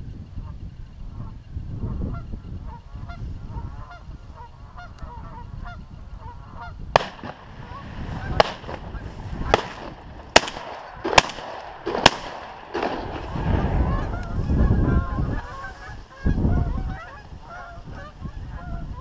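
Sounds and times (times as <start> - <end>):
wind buffeting microphone: 0.0 - 19.0
geese honking: 1.9 - 19.0
shotgun shots: 7.0 - 13.5.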